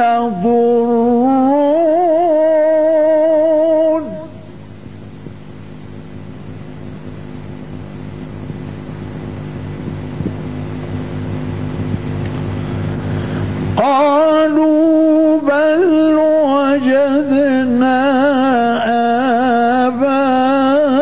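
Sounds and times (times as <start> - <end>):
person reciting melismatically: 0.0 - 4.3, 13.8 - 21.0
steady low hum: 0.0 - 21.0.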